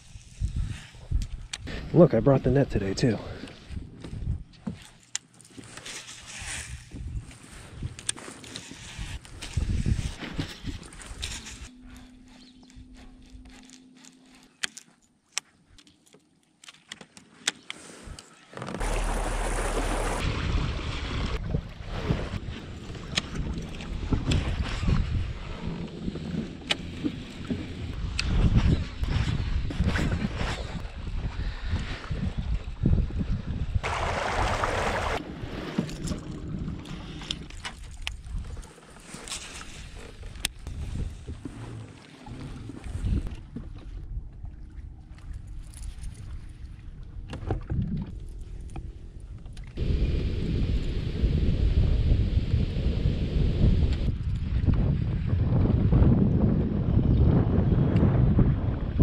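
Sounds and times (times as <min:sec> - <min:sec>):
wind buffeting microphone: 0:08.9 - 0:13.0, 0:18.8 - 0:38.6, 0:39.8 - 0:59.0
water lapping against a kayak hull: 0:17.8 - 0:49.8
water rushing past hull: 0:18.8 - 0:24.3, 0:33.8 - 0:37.2.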